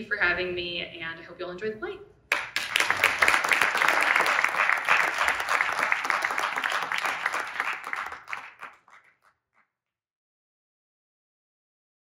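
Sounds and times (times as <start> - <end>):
audience applauding: 2.3 - 9.3.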